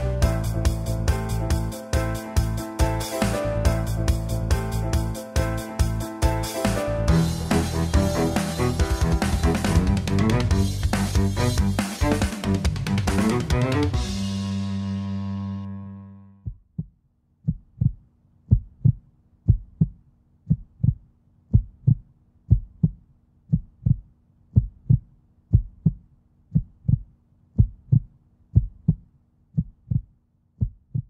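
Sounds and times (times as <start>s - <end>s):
heartbeat thumps: 7.1s - 13.4s, 16.4s - 31.0s.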